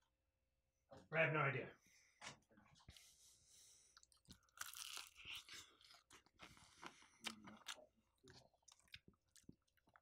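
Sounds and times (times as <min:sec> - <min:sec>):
chewing crispy fried chicken: 0:03.9 - 0:10.0.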